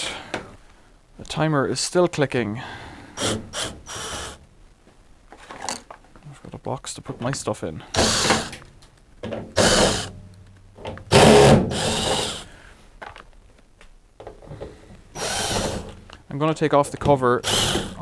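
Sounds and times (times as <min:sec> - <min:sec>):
cordless drill running: 0:03.2 - 0:04.4, 0:08.0 - 0:08.6, 0:09.6 - 0:10.1, 0:11.1 - 0:12.5, 0:15.2 - 0:16.0, 0:17.4 - 0:18.0.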